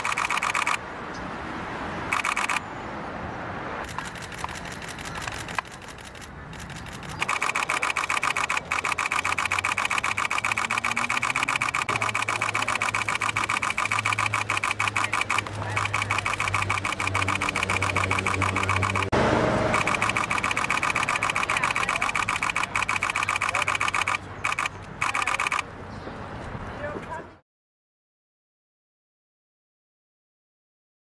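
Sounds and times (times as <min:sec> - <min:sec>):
camera shutters firing rapidly: 0:00.0 - 0:00.8, 0:02.1 - 0:02.6, 0:03.8 - 0:19.1, 0:19.7 - 0:25.6
low engine hum: 0:03.8 - 0:25.4.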